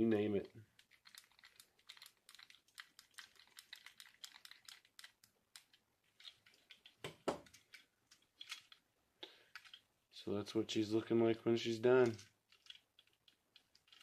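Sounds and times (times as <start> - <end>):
plastic parts clicking and tapping: 0.7 - 8.8, 9.4 - 9.8, 12.0 - 14.0.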